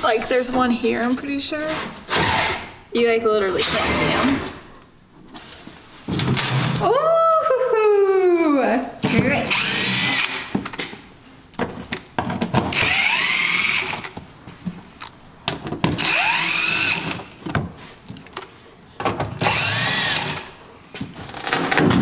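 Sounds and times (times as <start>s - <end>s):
cordless drill whining: 9.4s - 10.4s, 12.8s - 14.0s, 16.0s - 17.2s, 19.4s - 20.5s.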